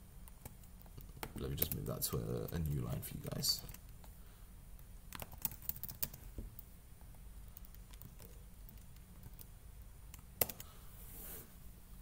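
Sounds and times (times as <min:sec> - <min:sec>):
computer keyboard typing: 0:00.2 - 0:03.9, 0:04.8 - 0:06.2, 0:07.4 - 0:09.5, 0:10.1 - 0:10.7.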